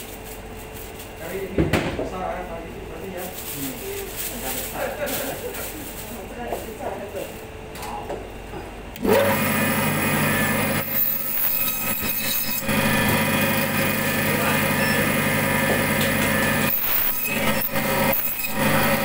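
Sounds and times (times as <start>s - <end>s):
electric band saw humming: 9.0s - 19.0s
saw cutting through bone: 9.0s - 19.0s.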